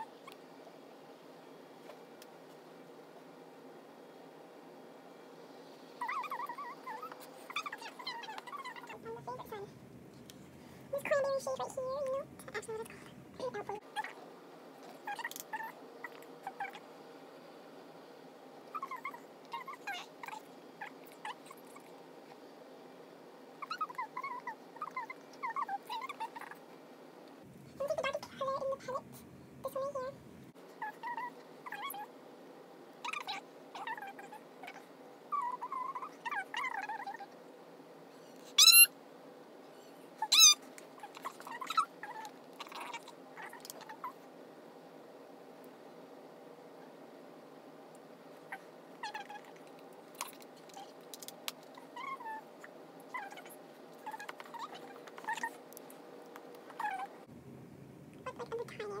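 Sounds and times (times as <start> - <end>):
small animal squeaking and chirping: 6.0 - 9.7, 14.9 - 16.8, 18.7 - 22.4, 23.6 - 26.6, 30.8 - 32.1, 33.0 - 37.4, 38.3 - 39.0, 39.8 - 44.2, 48.4 - 55.6, 56.7 - 57.3.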